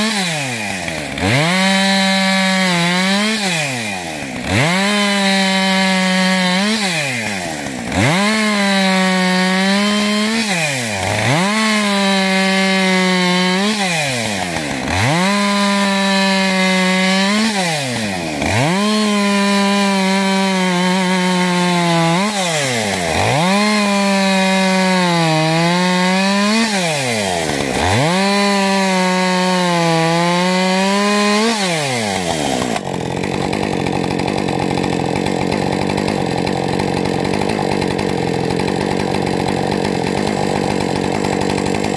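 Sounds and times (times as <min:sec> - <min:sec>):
chainsaw cutting log: 0:00.0 - 0:41.9
chainsaw idling: 0:00.0 - 0:41.9.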